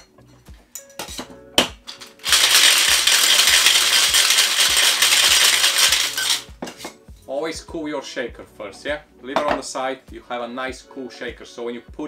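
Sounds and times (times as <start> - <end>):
ice clinking into metal tin: 1.8 - 6.5
ice rattling in cocktail shaker: 1.9 - 6.5.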